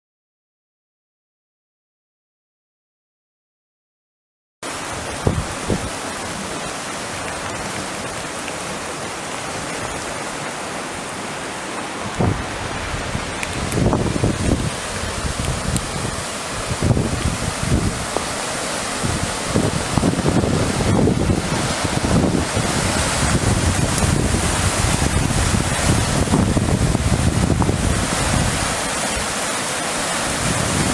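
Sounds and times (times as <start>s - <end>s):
creek water rushing: 4.6s - 30.9s
wind buffeting microphone: 4.8s - 8.4s, 11.9s - 29.4s, 30.0s - 30.9s.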